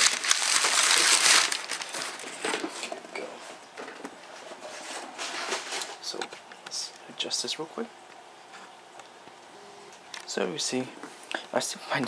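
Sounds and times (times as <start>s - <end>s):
packing paper crinkling: 0.0s - 2.9s.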